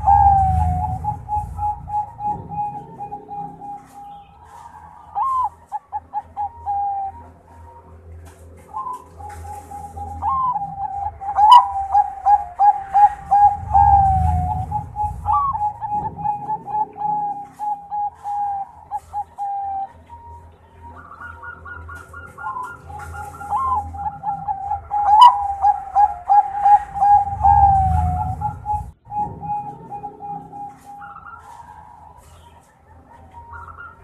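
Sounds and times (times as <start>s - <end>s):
dove cooing: 0.0s - 34.0s
higher series of bird notes: 0.0s - 34.0s.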